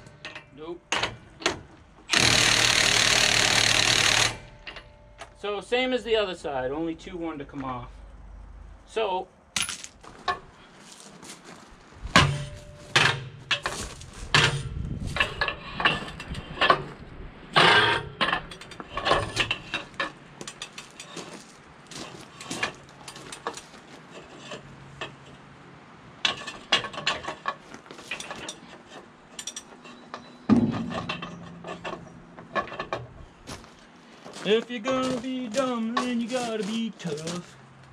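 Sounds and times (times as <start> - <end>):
metal tools clanking: 0.0 - 2.3, 4.2 - 5.4, 12.2 - 17.0, 17.6 - 25.5, 26.2 - 33.6, 34.3 - 37.6.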